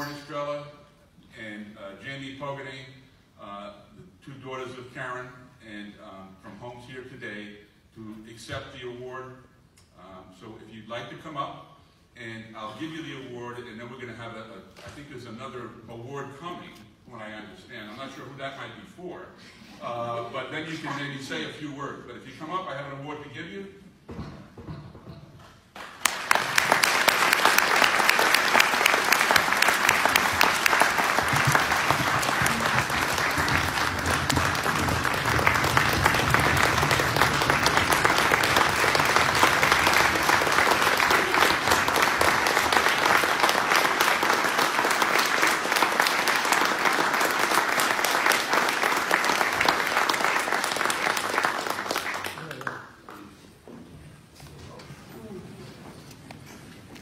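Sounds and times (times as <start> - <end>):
audience applauding: 25.8 - 53.4.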